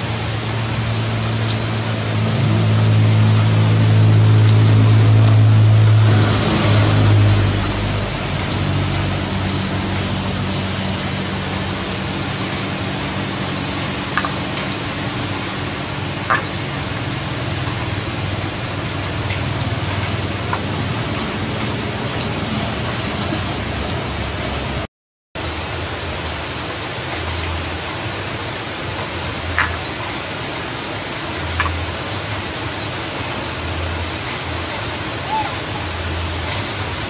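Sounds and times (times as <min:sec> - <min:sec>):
low hum: 0:00.0 - 0:23.2
heavy rain hiss: 0:00.0 - 0:37.0.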